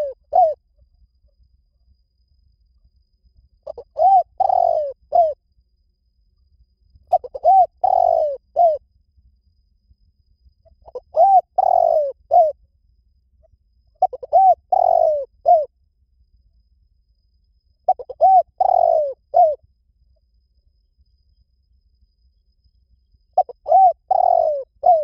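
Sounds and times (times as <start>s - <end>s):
dove cooing: 0.0s - 0.6s, 3.6s - 5.4s, 7.1s - 8.8s, 10.7s - 12.6s, 14.0s - 15.7s, 17.9s - 19.6s, 23.4s - 25.0s.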